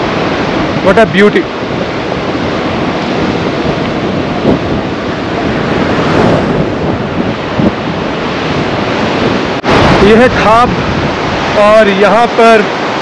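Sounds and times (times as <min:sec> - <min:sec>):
river rushing: 0:00.0 - 0:13.0
wind buffeting microphone: 0:00.0 - 0:13.0.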